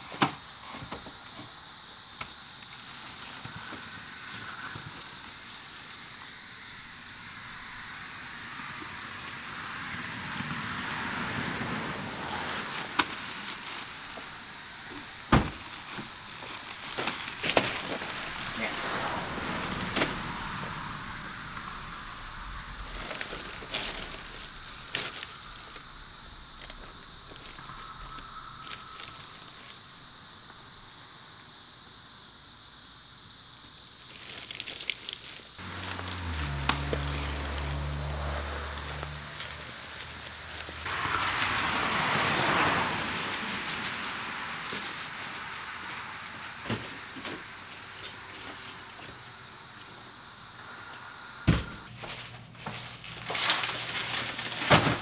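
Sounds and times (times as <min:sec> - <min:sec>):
outdoor hiss: 0:00.0 - 0:55.0
plastic bags rustling: 0:12.0 - 0:20.7, 0:22.6 - 0:29.8, 0:34.0 - 0:49.2, 0:51.6 - 0:55.0.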